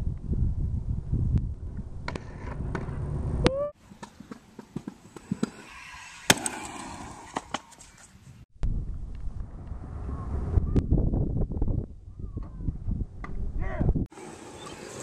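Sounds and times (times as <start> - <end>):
wind on microphone: 0.0 - 3.7, 8.6 - 14.1.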